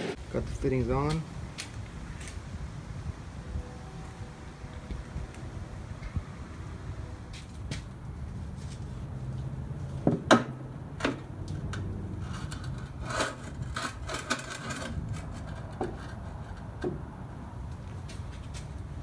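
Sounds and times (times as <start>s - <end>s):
plastic scraping on metal: 11.0s - 17.0s.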